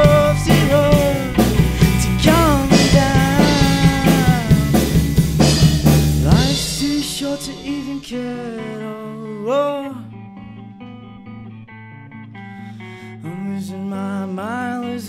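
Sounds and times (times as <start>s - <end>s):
man singing: 0.0s - 5.1s, 6.2s - 10.2s, 13.0s - 15.0s
drum kit: 0.0s - 8.1s
bass guitar: 0.0s - 9.2s
electric guitar: 0.0s - 15.0s.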